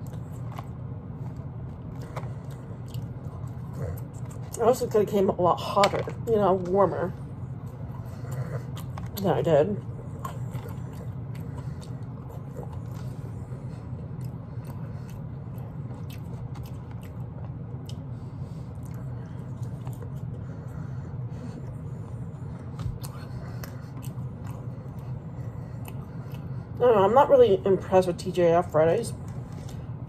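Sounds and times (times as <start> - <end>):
person chewing meat: 0.0 - 4.6, 9.8 - 26.8
steady low hum: 0.0 - 30.0.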